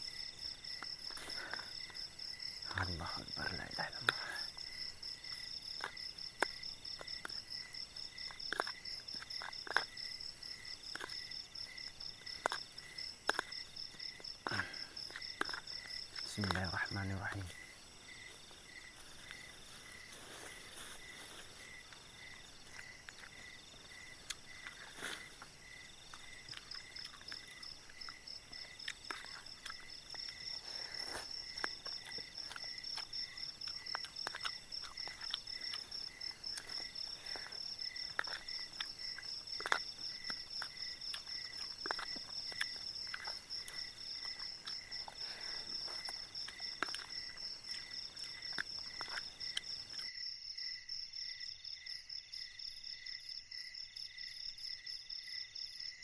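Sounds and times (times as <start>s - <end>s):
crickets and insects trilling: 0.0s - 56.0s.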